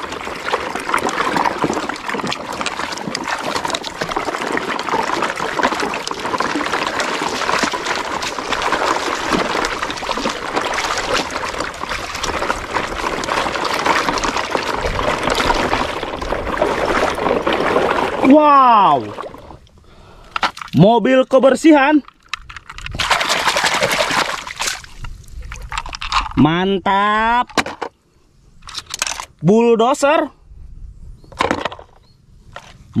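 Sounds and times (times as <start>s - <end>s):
stream water trickling and splashing: 0.0s - 20.8s, 21.8s - 26.3s.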